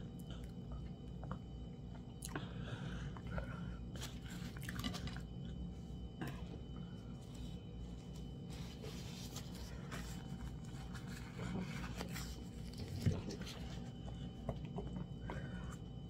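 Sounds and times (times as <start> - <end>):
rustling and scraping handling: 7.1 - 14.7.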